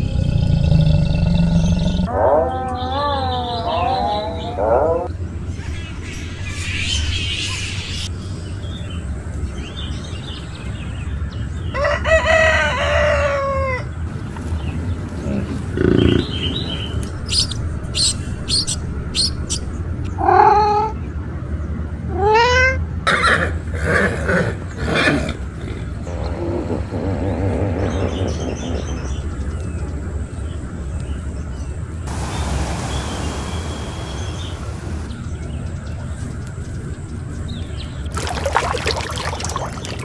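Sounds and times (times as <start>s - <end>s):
animal calls: 1.6s - 5.1s
steady low hum: 25.5s - 40.0s
bird chirps: 32.1s - 36.0s.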